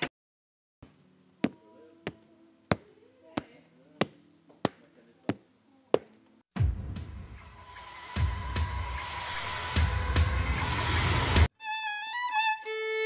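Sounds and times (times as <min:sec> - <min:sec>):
footsteps tapping: 0:00.8 - 0:06.2.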